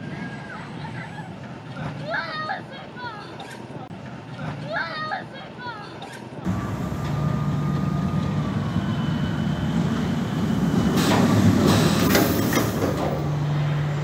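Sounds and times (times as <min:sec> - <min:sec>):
roller coaster wheels clattering: 0:05.9 - 0:14.0.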